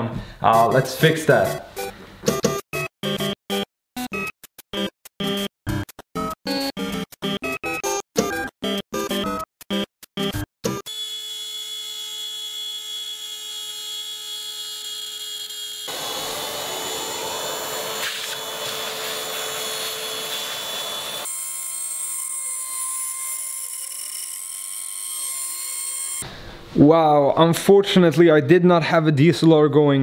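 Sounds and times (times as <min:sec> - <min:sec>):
router spindle motor whining: 0:10.9 - 0:26.2
rough cutting noise: 0:15.1 - 0:21.4.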